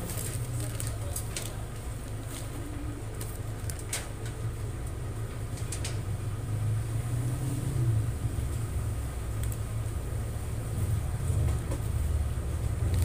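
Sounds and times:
paper sheet rustling: 0.0s - 3.9s
steady low rumble: 7.8s - 13.0s.

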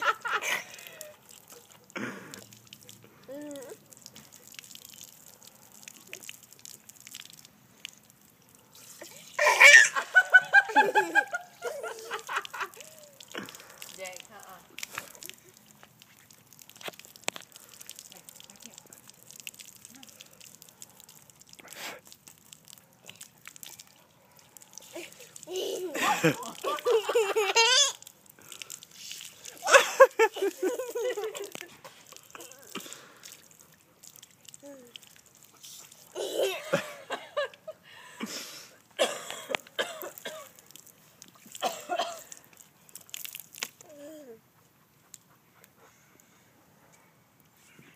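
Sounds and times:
rush of water: 0.0s - 37.3s
water dripping and pattering: 0.0s - 47.9s
toddler babbling and squealing: 3.3s - 3.8s, 27.6s - 28.0s, 43.8s - 44.4s.

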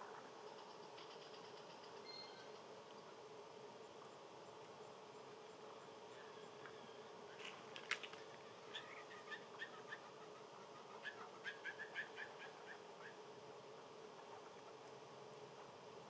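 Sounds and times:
faint background hum: 0.0s - 16.0s.

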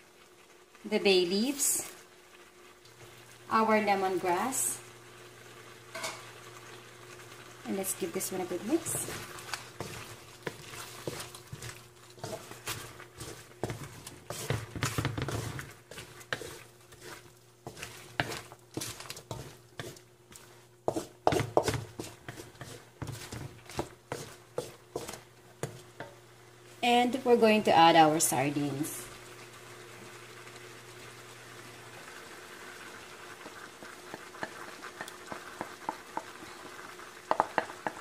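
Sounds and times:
wooden spatula scraping a wok: 7.8s - 26.1s, 33.3s - 38.0s.

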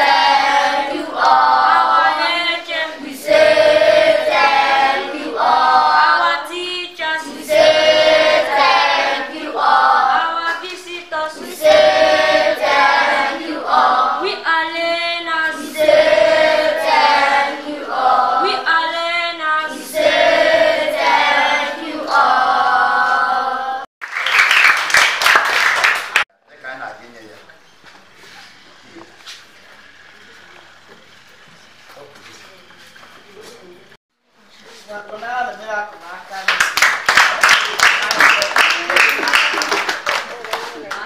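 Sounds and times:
children's choir singing: 0.0s - 23.9s.

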